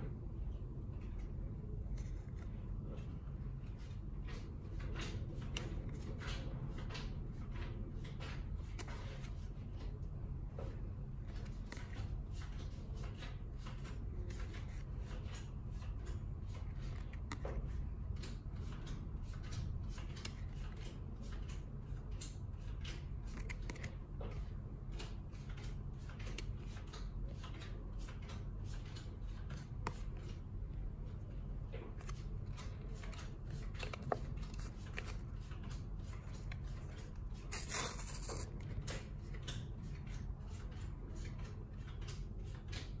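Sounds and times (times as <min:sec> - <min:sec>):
low steady hum: 0:00.0 - 0:43.0
cards clicking and rubbing: 0:08.6 - 0:09.5, 0:11.2 - 0:13.0, 0:16.7 - 0:17.6, 0:20.0 - 0:20.7, 0:23.2 - 0:24.0, 0:31.9 - 0:39.7.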